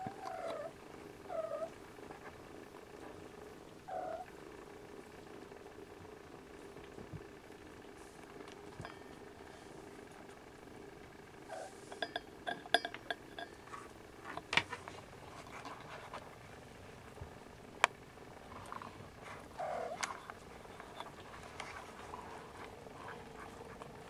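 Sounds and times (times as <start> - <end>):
light clicks and clinks: 8.7 - 9.3, 11.9 - 14.6.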